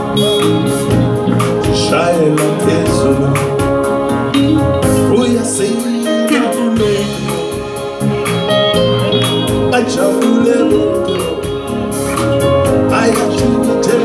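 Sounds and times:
bass guitar: 0.0s - 14.0s
drum kit beat: 0.0s - 14.0s
electric guitar: 0.0s - 14.0s
man singing: 1.6s - 8.2s, 9.6s - 12.0s, 12.6s - 14.0s.

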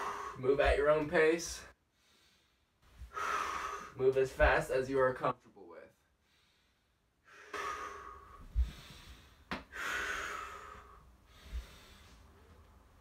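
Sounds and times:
man breathing hard: 0.0s - 0.4s, 1.8s - 4.0s, 6.2s - 12.4s.

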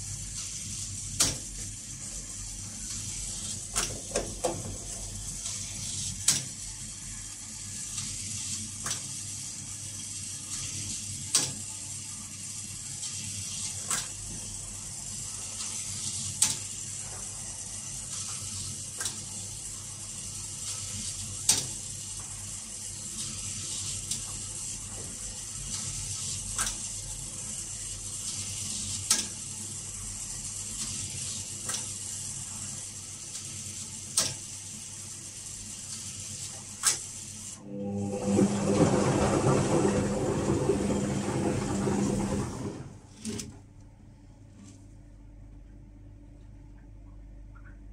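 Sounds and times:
washing machine hum: 0.0s - 47.9s
washing machine clicking: 3.7s - 5.5s, 37.6s - 43.7s.

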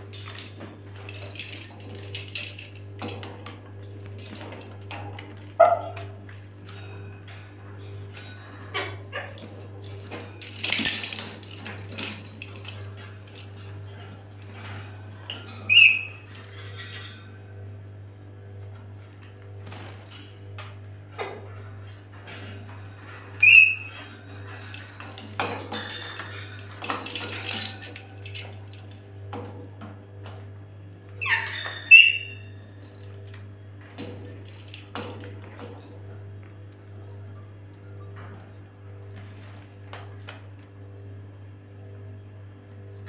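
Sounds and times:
metal cage clinking and rattling: 0.0s - 17.4s, 21.2s - 40.4s
parrot screeching: 31.2s - 32.4s.

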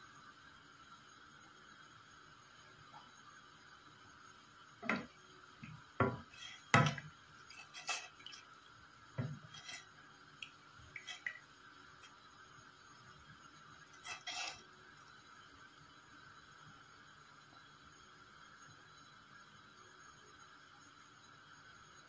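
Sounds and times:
spoon knocking against metal pot: 4.8s - 5.1s, 6.0s - 7.1s
wooden spoon stirring water in pot: 4.8s - 12.2s, 14.0s - 14.6s.

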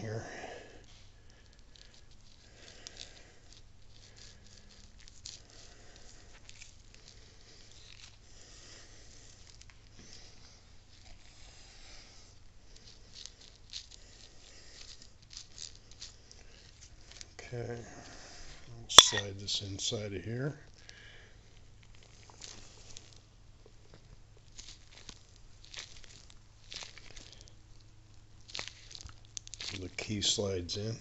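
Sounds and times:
gloved hands rustling and squishing: 1.0s - 8.3s, 12.7s - 17.4s, 24.2s - 31.0s
small scrapes and clicks: 1.4s - 8.2s
low steady hum: 18.8s - 20.0s.

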